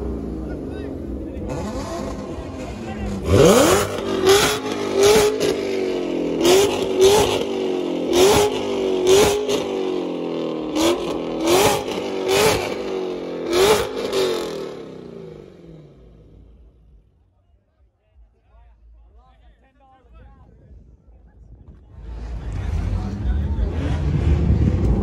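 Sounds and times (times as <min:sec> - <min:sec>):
car engine revving in blips: 0:01.3 - 0:09.8, 0:10.6 - 0:15.6, 0:21.9 - 0:25.0.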